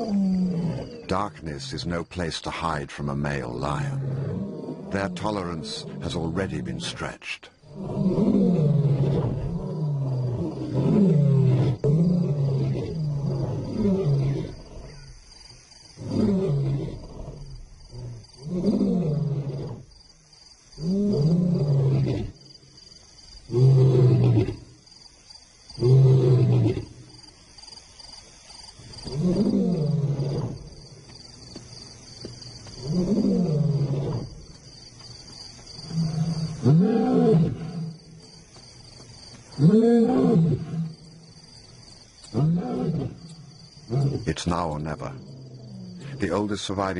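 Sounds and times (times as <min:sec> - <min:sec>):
lion roaring: 0:00.0 - 0:01.2, 0:03.5 - 0:15.1, 0:16.0 - 0:19.9, 0:20.8 - 0:22.4, 0:29.1 - 0:30.8, 0:32.8 - 0:34.4, 0:35.8 - 0:38.0, 0:39.6 - 0:41.0, 0:42.3 - 0:43.3.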